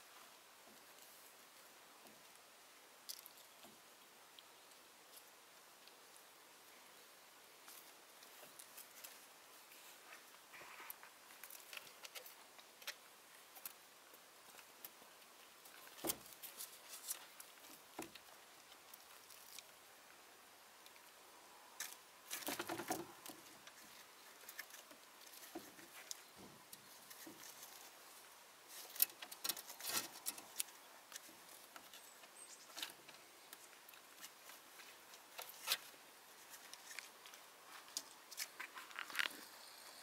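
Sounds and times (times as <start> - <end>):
kitten claws scrabbling: 22.3 - 23.4.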